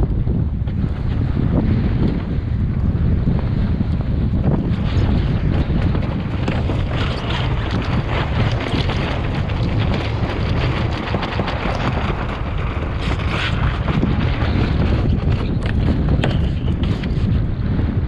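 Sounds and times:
choppy sea rushing around hull: 0:00.0 - 0:18.0
strong wind buffeting microphone: 0:00.0 - 0:18.0.

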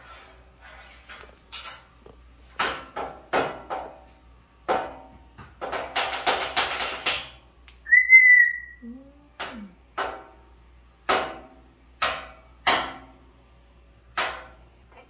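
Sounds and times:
parrot whistle: 0:07.8 - 0:08.9.

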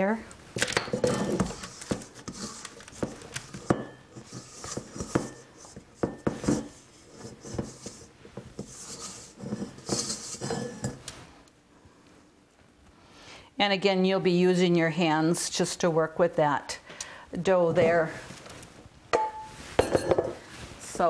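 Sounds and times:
spoon scraping mixing bowl: 0:00.9 - 0:11.1.

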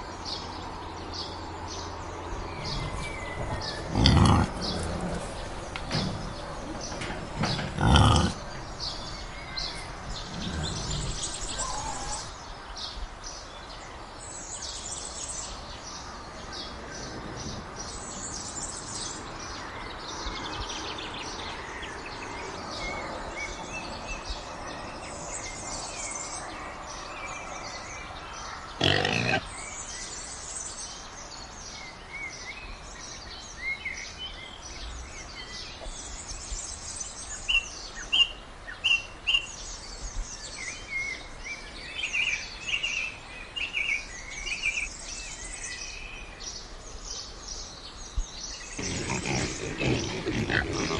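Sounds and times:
birdsong chirps: 0:00.0 - 0:50.9
wild boar grunts: 0:02.6 - 0:06.3, 0:07.3 - 0:08.7, 0:10.1 - 0:12.3, 0:28.8 - 0:29.6, 0:48.7 - 0:50.9.

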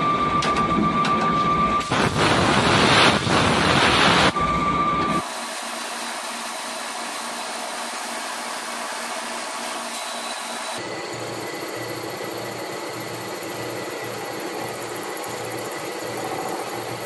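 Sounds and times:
lathe machining metal: 0:04.3 - 0:17.0.

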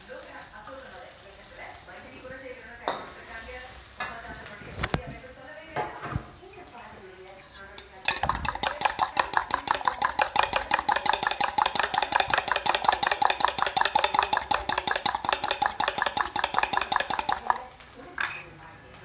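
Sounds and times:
fork beating eggs in a bowl: 0:07.7 - 0:18.4.

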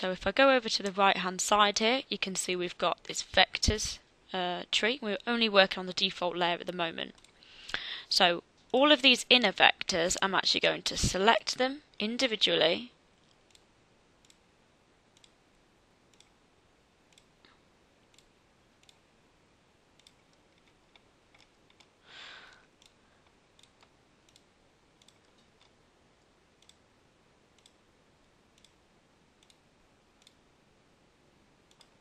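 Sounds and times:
computer mouse clicks: 0:15.2 - 0:15.4, 0:16.1 - 0:16.4, 0:18.1 - 0:19.0, 0:20.0 - 0:21.9, 0:22.8 - 0:25.8, 0:26.6 - 0:26.8, 0:27.6 - 0:27.8, 0:28.6 - 0:28.8, 0:29.4 - 0:29.6, 0:30.2 - 0:30.4, 0:31.7 - 0:32.0.

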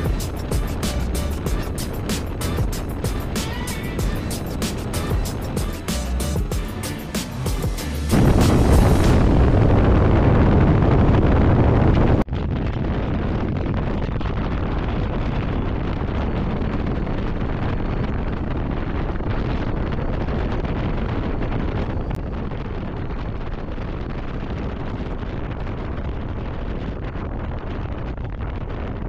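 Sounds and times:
motorcycle engine rumbling: 0:00.0 - 0:11.6
wind buffeting microphone: 0:08.1 - 0:29.0.

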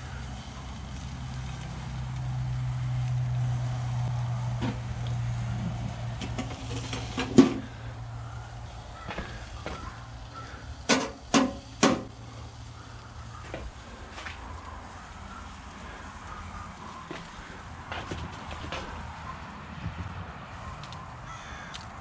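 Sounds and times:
metal grill lid clanking: 0:05.6 - 0:07.9, 0:09.0 - 0:12.2
grill lid knocks: 0:05.8 - 0:07.8, 0:09.0 - 0:10.0, 0:10.8 - 0:12.2.

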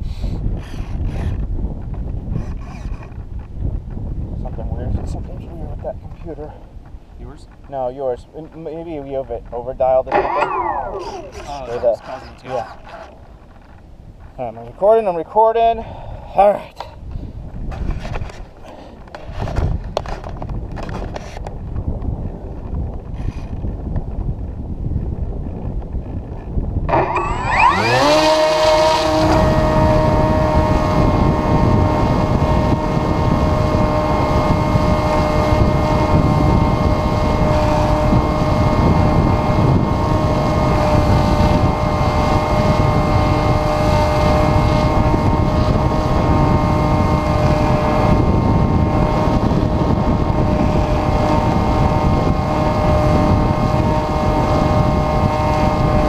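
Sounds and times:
wind rushing over microphone: 0:00.0 - 0:56.0
electric motor and propeller whine: 0:00.5 - 0:03.4, 0:10.0 - 0:13.8, 0:26.0 - 0:56.0.

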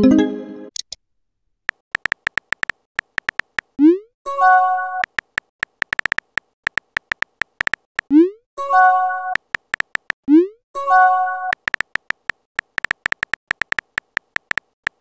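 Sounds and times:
keyboard tap clicks: 0:01.7 - 0:03.7, 0:05.0 - 0:08.1, 0:09.4 - 0:10.2, 0:11.5 - 0:15.0.

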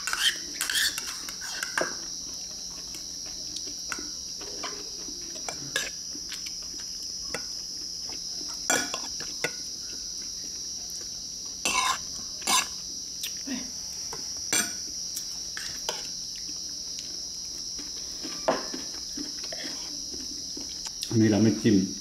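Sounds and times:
insect chirring: 0:00.0 - 0:22.0
cutlery clinking on ceramic bowls: 0:08.7 - 0:09.6.

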